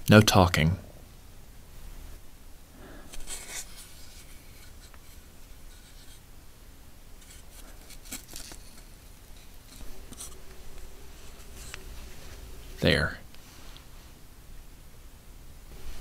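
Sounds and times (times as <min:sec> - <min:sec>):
low steady hum: 0:00.0 - 0:16.0
mask rubbing and scraping: 0:03.0 - 0:06.2, 0:07.2 - 0:14.2.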